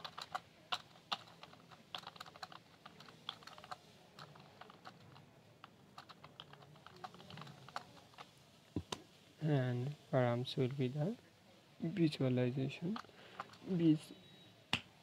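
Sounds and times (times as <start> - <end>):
computer keyboard typing: 0.0 - 8.3.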